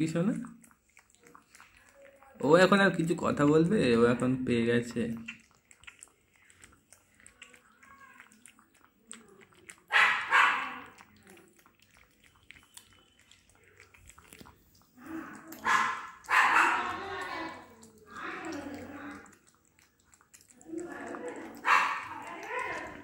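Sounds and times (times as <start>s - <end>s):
puppy eating from plastic bowl: 0.0s - 23.0s
dog barking loudly: 9.9s - 10.9s, 15.6s - 17.0s, 21.6s - 22.8s.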